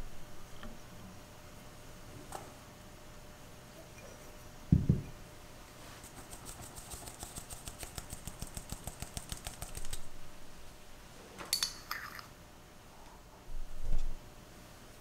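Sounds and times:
spoon clinking ceramic dish: 11.6s - 12.3s.

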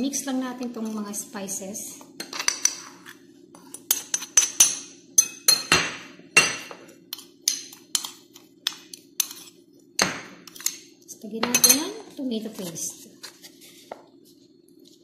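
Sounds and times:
metal spoon clinking on ceramic plate: 3.8s - 9.4s.

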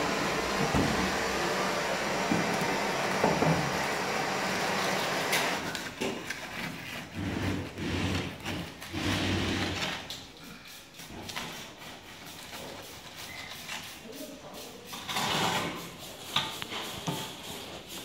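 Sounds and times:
wooden board scraping wet mortar: 4.9s - 18.0s.

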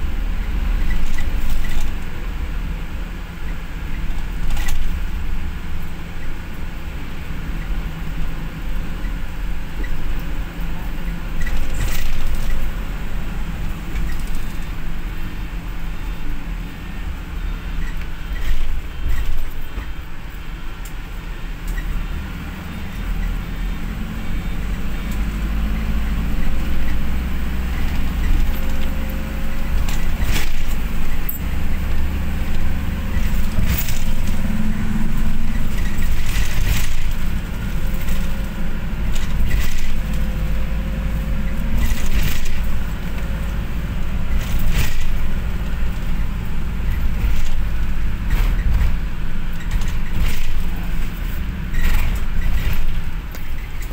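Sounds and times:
vehicle cabin rumble: 0.0s - 53.9s
sharp rattles and knocks: 0.8s - 2.1s, 11.0s - 12.8s, 13.7s - 14.9s, 25.1s - 53.9s.

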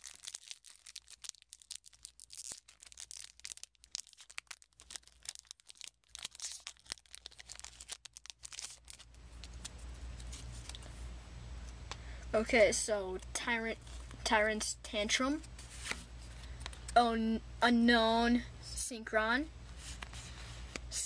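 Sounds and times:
foil pack crinkling: 0.0s - 10.9s
low steady hum: 0.0s - 21.0s.

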